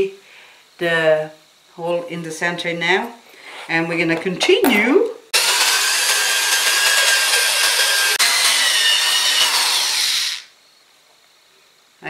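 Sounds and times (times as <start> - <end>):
drill grinding through ceramic: 5.3 - 10.5.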